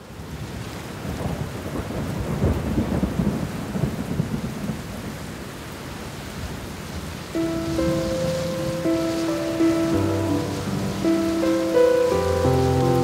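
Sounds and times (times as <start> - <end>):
rain: 0.0 - 13.0
low rolling thunder: 1.0 - 5.1, 7.4 - 13.0.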